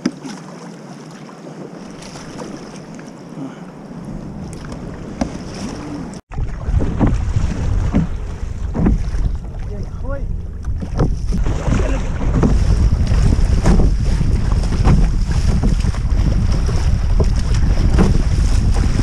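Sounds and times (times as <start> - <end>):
paddle splashing water: 0.0 - 19.0
wind buffeting microphone: 3.9 - 19.0.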